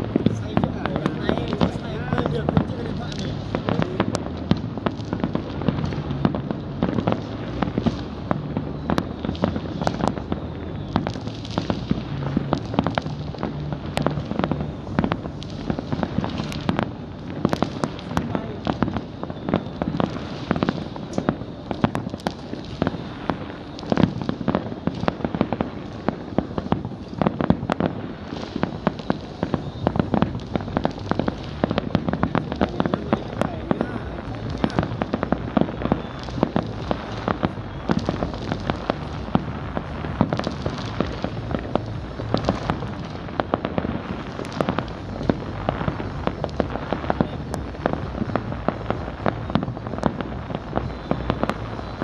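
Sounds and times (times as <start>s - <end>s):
fireworks bangs and pops: 0.0s - 52.0s
low rumble: 0.0s - 52.0s.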